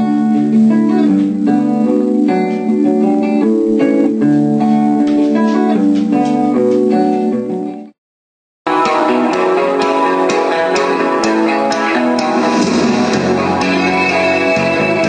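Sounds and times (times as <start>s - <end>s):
plucked guitar background music: 0.0s - 8.0s, 8.7s - 15.0s.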